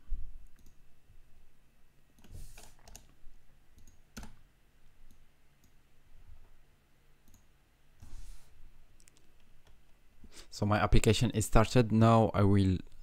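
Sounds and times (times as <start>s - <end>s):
computer mouse clicks: 0.4s - 0.8s, 2.2s - 3.2s, 3.8s - 4.4s, 7.2s - 8.1s, 9.0s - 9.8s.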